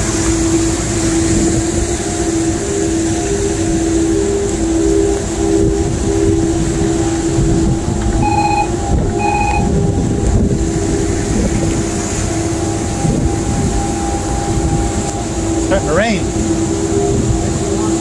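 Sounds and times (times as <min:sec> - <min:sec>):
boat engines droning: 0:00.0 - 0:18.0
wind rumbling over microphone: 0:00.0 - 0:18.0
short electronic beeps: 0:08.2 - 0:09.7.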